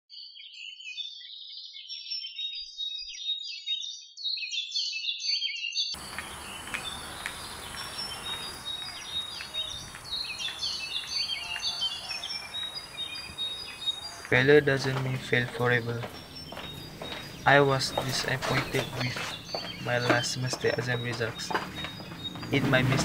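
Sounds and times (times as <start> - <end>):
birds singing: 0.2 - 23.0
outdoor hiss: 6.0 - 23.0.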